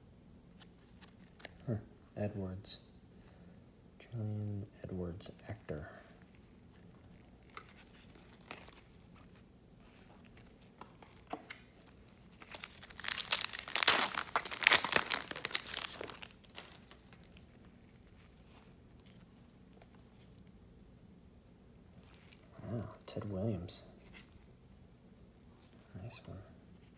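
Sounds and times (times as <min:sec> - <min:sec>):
foil wrapper crinkling and tearing: 0:06.2 - 0:20.3.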